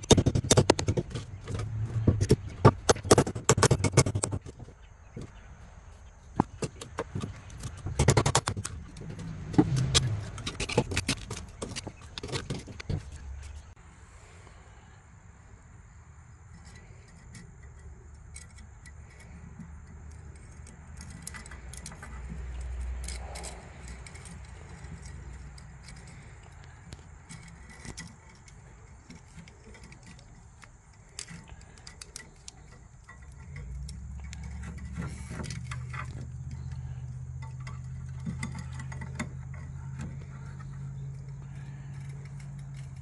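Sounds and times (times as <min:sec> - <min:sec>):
sharp clicks and clinks: 0:16.5 - 0:43.0.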